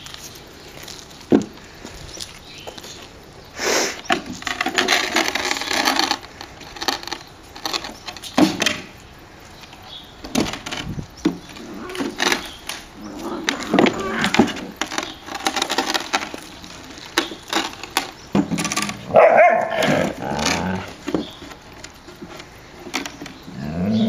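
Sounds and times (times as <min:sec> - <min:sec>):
wooden board scraping on bricks: 0:04.0 - 0:09.0, 0:10.2 - 0:24.0.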